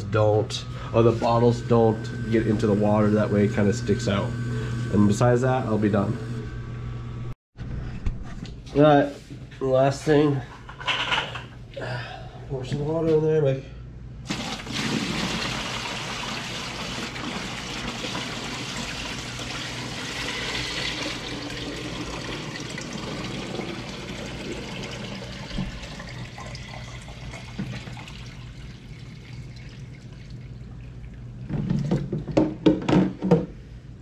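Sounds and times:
water pouring into plastic bucket: 14.3s - 32.0s.

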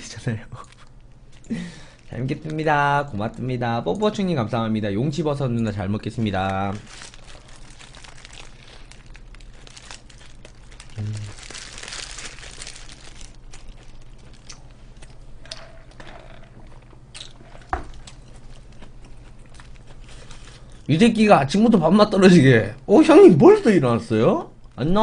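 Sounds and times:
wrapper paper crinkling: 6.2s - 14.8s
crunchy bites and chewing: 6.7s - 20.9s.

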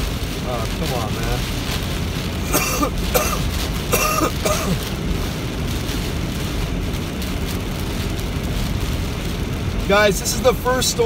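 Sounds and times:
steady rain: 0.0s - 11.0s
tyre noise on wet road: 0.0s - 11.0s
person coughing: 2.5s - 4.8s.

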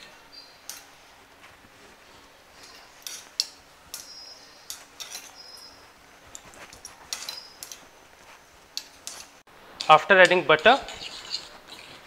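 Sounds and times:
metal spoon scraping saucepan: 2.6s - 5.8s, 6.8s - 7.8s, 8.8s - 12.0s.

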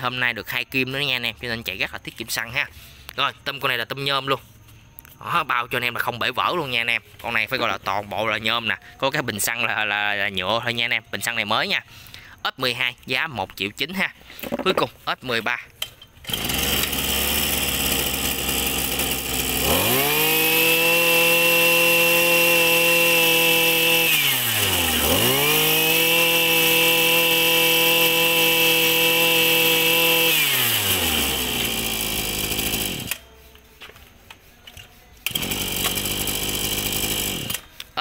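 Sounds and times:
brush cutter engine revving: 16.2s - 33.4s, 35.2s - 37.9s.

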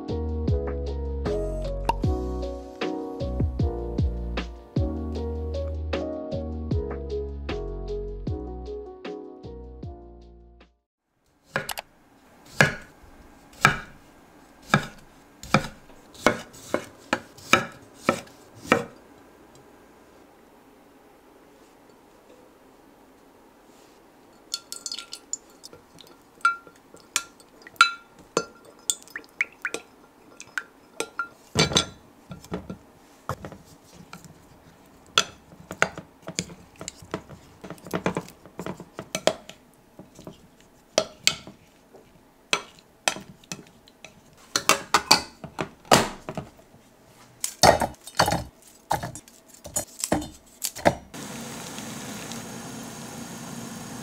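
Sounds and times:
water boiling in a saucepan: 24.3s - 32.0s, 51.2s - 54.0s
metal spoon clinking on glass dish: 24.4s - 32.0s.

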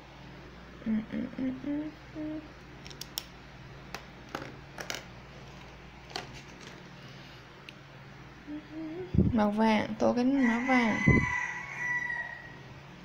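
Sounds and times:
woman humming: 0.8s - 2.6s, 8.4s - 9.6s.

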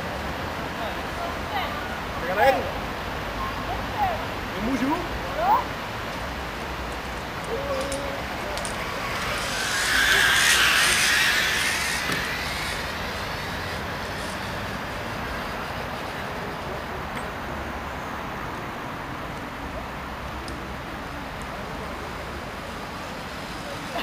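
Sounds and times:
pulley whirring on steel cable: 7.2s - 16.3s.

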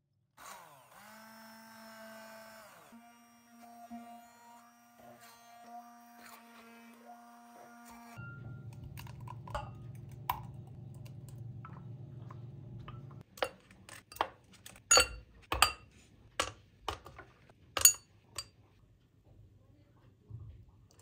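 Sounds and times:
ice clinking against glasses: 8.2s - 10.0s, 14.9s - 15.8s
low hum: 8.2s - 13.2s.

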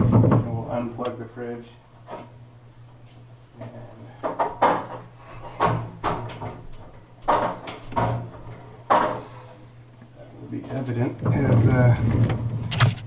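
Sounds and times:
refrigerator knocking and thudding: 0.0s - 0.7s, 5.6s - 9.2s, 11.1s - 13.0s
steady low hum: 0.0s - 13.0s.

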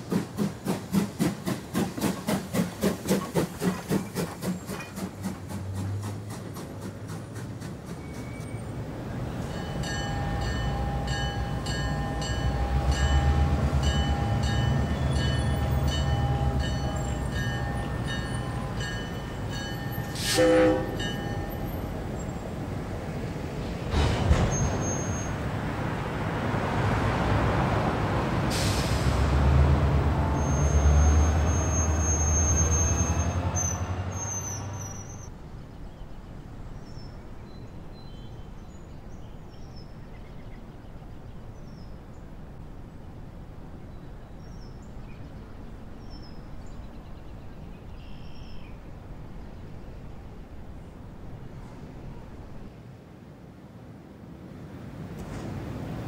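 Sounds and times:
train rumbling past: 0.0s - 53.1s, 54.6s - 56.0s
train horn toot: 20.1s - 21.8s.

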